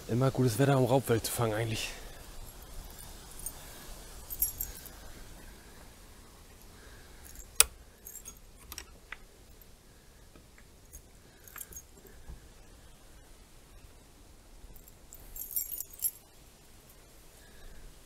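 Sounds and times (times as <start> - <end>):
metal parts jingling: 2.2 - 5.1, 7.2 - 8.9, 10.9 - 12.2, 14.7 - 17.1.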